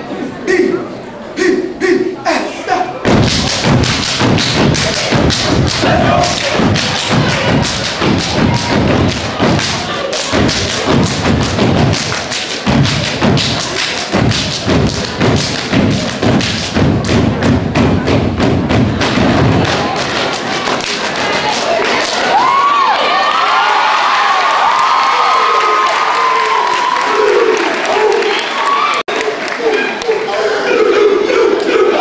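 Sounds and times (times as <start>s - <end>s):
feet stomping in rhythm: 3.0s - 22.0s.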